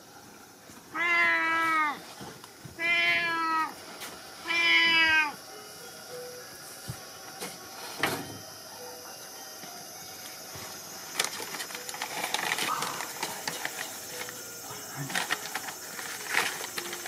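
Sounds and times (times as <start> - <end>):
paper crinkling and crackling: 11.1 - 17.0.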